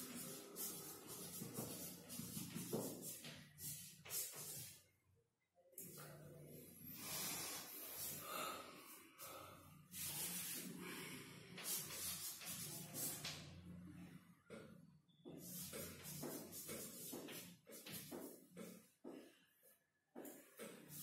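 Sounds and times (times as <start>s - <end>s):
chalk scratching on chalkboard: 0.0s - 4.8s, 11.6s - 13.5s, 15.3s - 19.1s.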